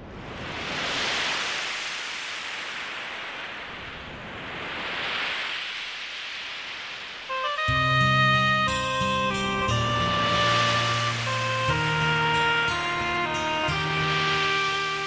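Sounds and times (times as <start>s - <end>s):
sea surf waves washing: 0.0s - 15.0s.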